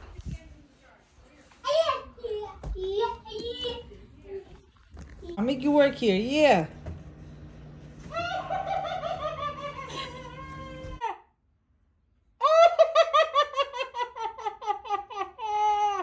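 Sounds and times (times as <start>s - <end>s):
child giggling: 8.1s - 11.3s, 12.4s - 16.0s.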